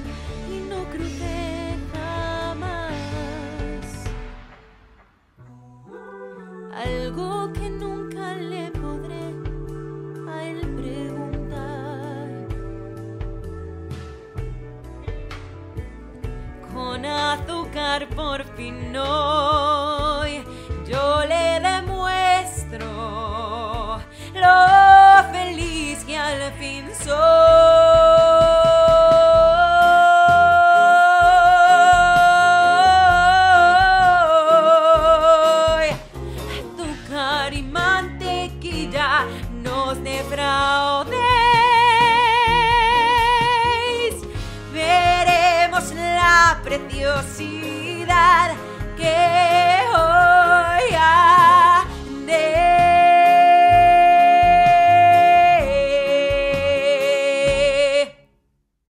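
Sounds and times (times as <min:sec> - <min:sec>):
instrumental backing track: 0:00.0 - 0:05.4, 0:06.6 - 0:58.1
woman singing a high note: 0:05.5 - 0:09.5.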